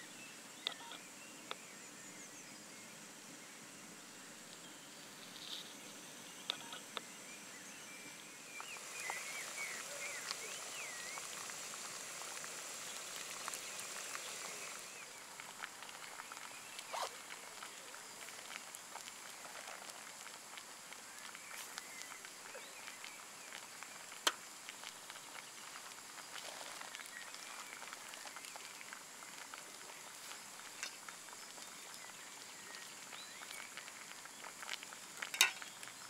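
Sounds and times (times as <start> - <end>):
water boiling: 0.3 - 36.0
camping stove hissing: 3.8 - 36.0
bird chirps: 6.3 - 11.3.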